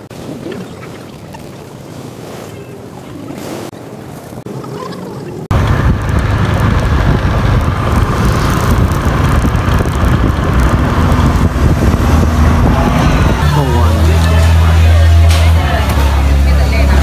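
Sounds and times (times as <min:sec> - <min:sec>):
wind buffeting microphone: 0:00.0 - 0:14.6
vehicle engine running: 0:05.5 - 0:17.0.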